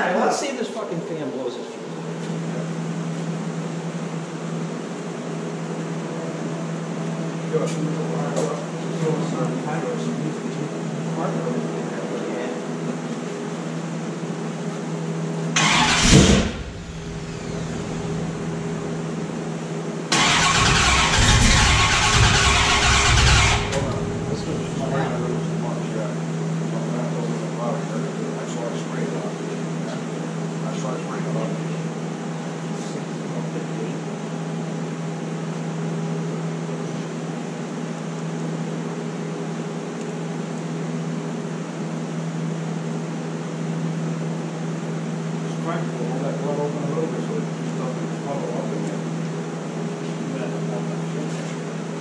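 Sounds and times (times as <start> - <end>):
car engine starting and running: 15.6 - 19.4, 20.1 - 24.9.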